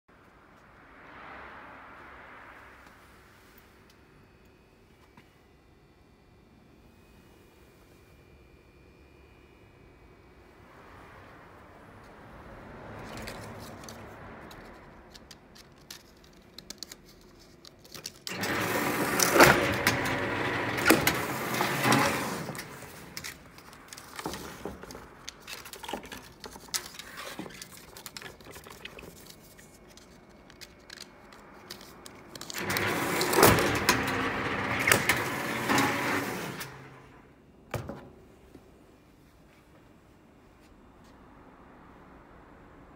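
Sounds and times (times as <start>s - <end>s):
strapping machine whirring and clacking: 18.0s - 29.3s, 30.6s - 37.2s.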